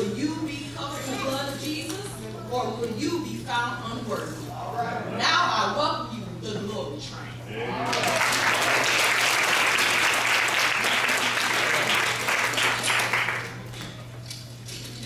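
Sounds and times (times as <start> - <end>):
audience applauding: 7.8 - 13.8.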